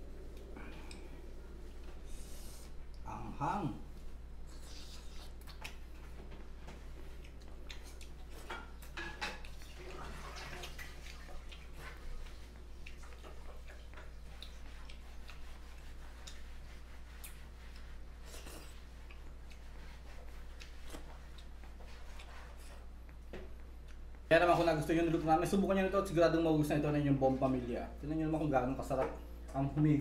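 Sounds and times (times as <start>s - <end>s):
steady low hum: 0.0s - 30.0s
small clicks and wet ticks: 7.0s - 9.7s, 10.6s - 16.6s, 18.9s - 22.3s.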